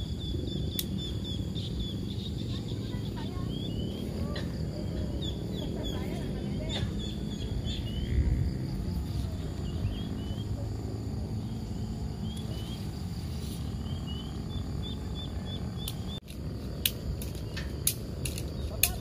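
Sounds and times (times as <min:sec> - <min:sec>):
bird chirping: 0:00.0 - 0:08.6, 0:09.2 - 0:10.8, 0:11.4 - 0:16.2
tent poles clicking apart: 0:15.8 - 0:19.0.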